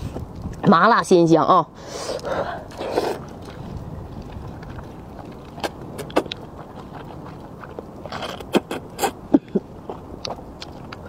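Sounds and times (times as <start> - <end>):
noodles slurped and chewed: 2.1 - 11.0
low rumble: 2.5 - 8.4
wet mouth clicks: 5.4 - 9.2.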